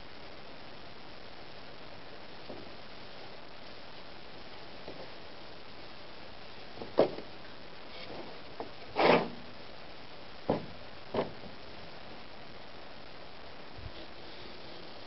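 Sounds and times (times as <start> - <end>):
steady hiss: 0.0 - 15.0
wooden block scraping: 7.9 - 9.4.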